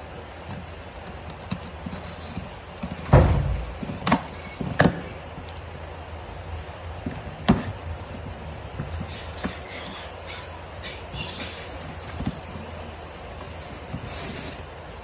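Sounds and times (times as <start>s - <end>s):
cardboard box thump: 3.0s - 5.1s.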